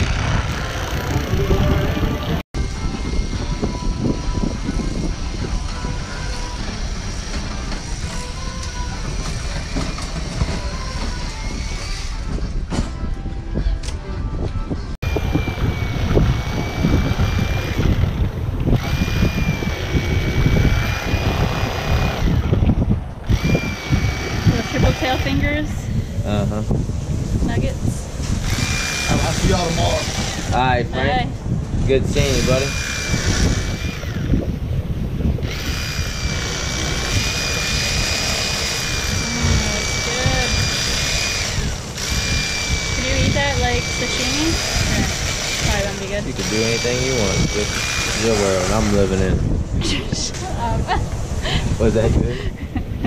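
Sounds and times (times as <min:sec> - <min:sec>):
wind buffeting microphone: 0:00.0 - 0:53.0
electric fillet knife motor whine: 0:15.0 - 0:25.5, 0:28.4 - 0:30.7, 0:32.2 - 0:34.5, 0:35.4 - 0:49.2.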